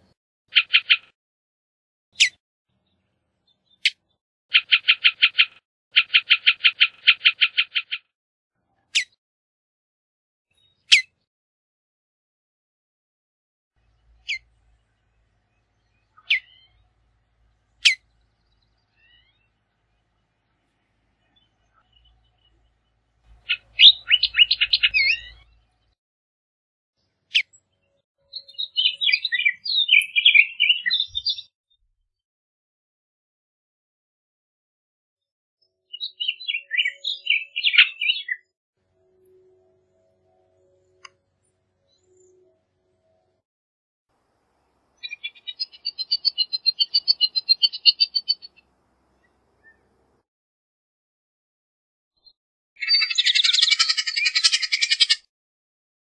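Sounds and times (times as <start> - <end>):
bird calling: 16.2 - 16.8, 23.3 - 25.6, 45.0 - 49.9, 52.8 - 55.3.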